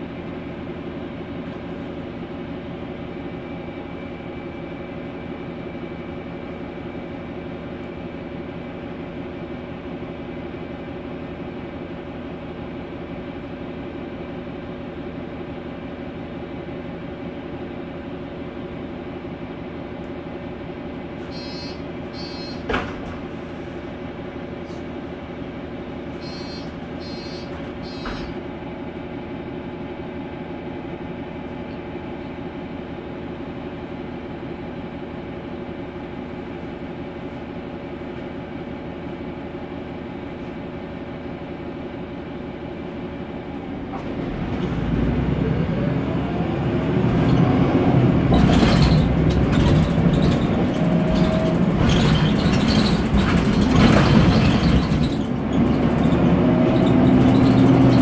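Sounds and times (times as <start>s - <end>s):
bus engine: 0.0s - 58.0s
knocks and rattles: 48.3s - 56.1s.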